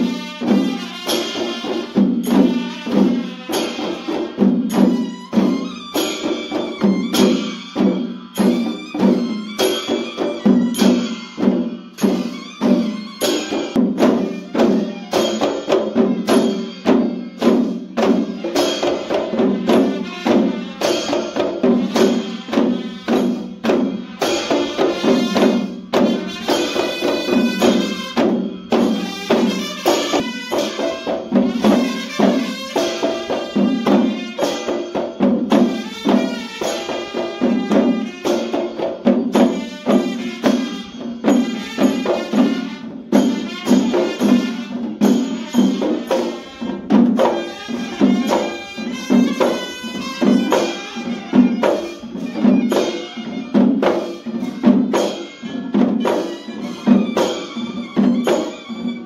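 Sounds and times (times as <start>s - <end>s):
barrel drums played together: 0.0s - 59.0s
metallic ringing: 1.1s - 53.4s.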